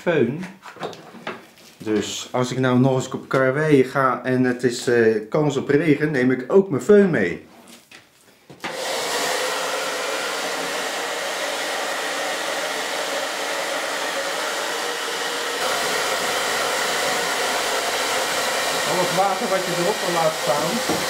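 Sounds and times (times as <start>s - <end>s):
hair dryer blowing: 8.6s - 21.0s.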